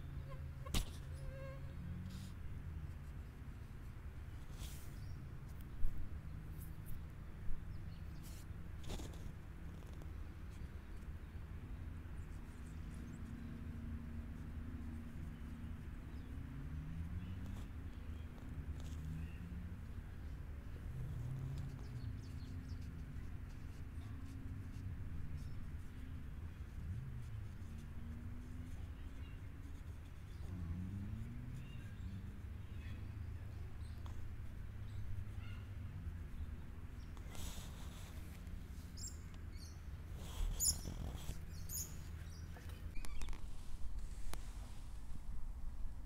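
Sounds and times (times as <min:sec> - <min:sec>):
faint distant engine hum: 0:00.0 - 0:46.0
faint bird chirps: 0:39.0 - 0:43.4.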